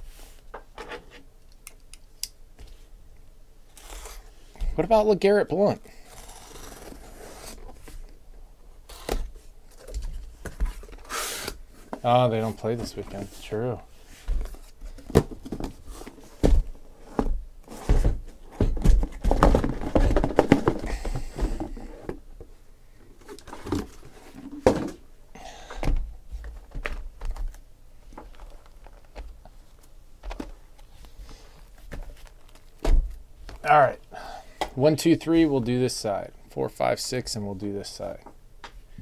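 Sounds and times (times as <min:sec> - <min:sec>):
cardboard boxes knocking: 0:16.4 - 0:22.2.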